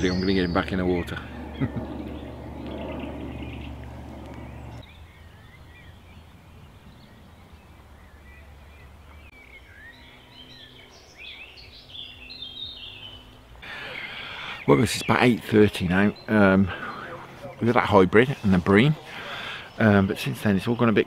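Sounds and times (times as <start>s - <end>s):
small birds chirping: 0.0s - 21.0s
soft rushing noise: 0.6s - 4.8s.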